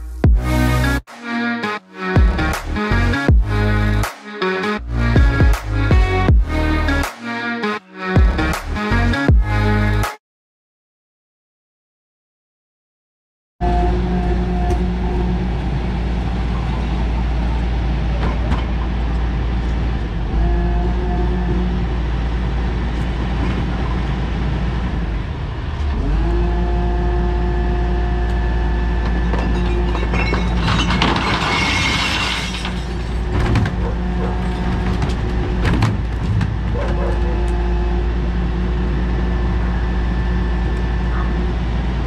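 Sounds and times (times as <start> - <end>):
garbage truck engine revving: 13.7 - 42.0
recycling clattering into hopper: 29.0 - 37.1.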